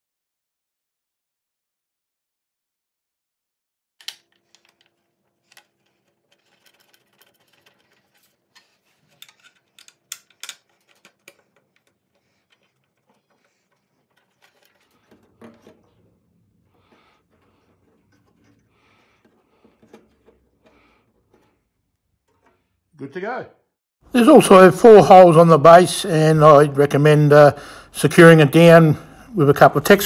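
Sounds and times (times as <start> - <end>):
plastic chute being handled: 4.0 - 23.1
screwdriver clicking on screws: 9.0 - 15.8.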